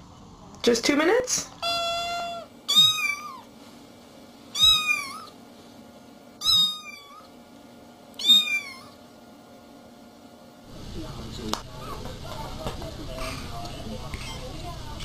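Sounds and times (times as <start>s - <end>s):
cat meowing: 1.6s - 3.5s, 4.5s - 5.4s, 6.4s - 7.3s, 8.2s - 9.0s.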